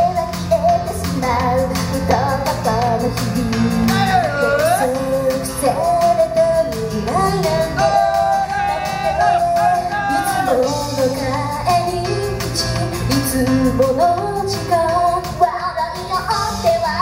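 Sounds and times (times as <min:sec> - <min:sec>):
amplified backing music with beat: 0:00.0 - 0:17.0
women singing into microphones: 0:00.0 - 0:17.0.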